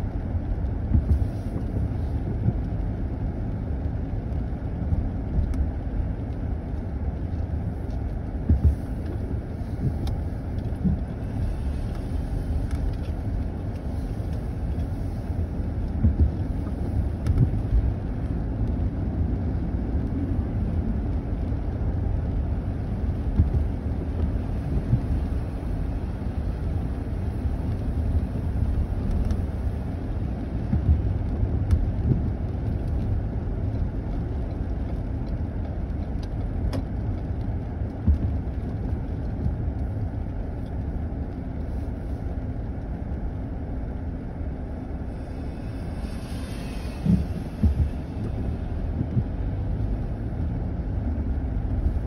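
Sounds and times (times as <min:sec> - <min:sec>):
tyre and engine rumble: 0:00.0 - 0:52.0
brief hiss: 0:45.1 - 0:47.6.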